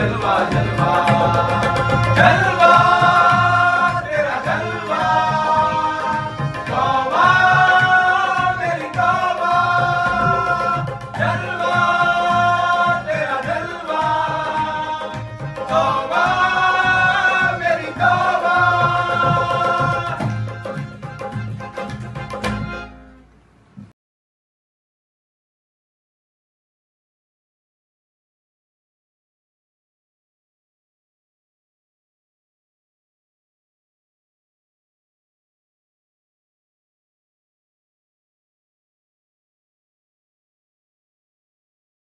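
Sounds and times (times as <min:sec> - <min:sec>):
men singing together: 0:00.0 - 0:20.6
percussion beat: 0:00.0 - 0:23.0
harmonium: 0:00.0 - 0:23.5.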